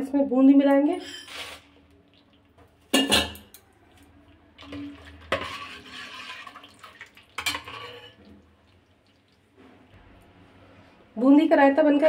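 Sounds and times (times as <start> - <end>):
ladle stirring in a bowl: 4.6 - 9.6.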